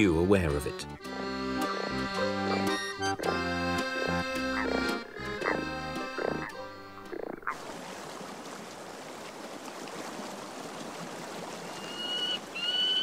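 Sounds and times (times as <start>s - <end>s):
pitched tuneful calling: 0.8s - 7.6s, 11.6s - 13.0s
stream flowing: 1.0s - 13.0s.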